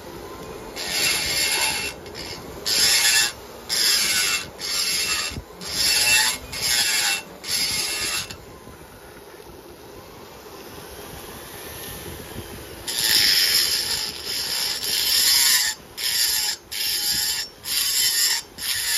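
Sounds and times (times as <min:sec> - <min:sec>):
die grinder burr cutting metal: 0:00.7 - 0:08.4, 0:12.8 - 0:18.9.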